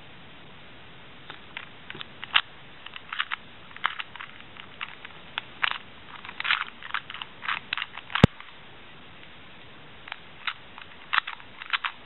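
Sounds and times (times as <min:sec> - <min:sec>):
speed cube plastic clicks: 0:01.3 - 0:08.5, 0:10.1 - 0:12.0.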